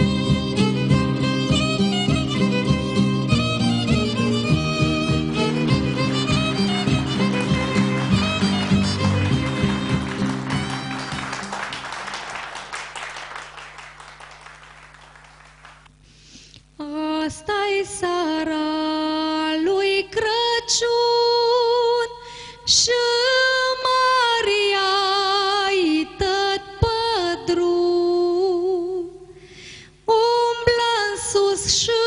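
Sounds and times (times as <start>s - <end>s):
applause: 4.4s - 15.9s
woman singing unaccompanied: 16.8s - 29.2s, 30.1s - 32.0s.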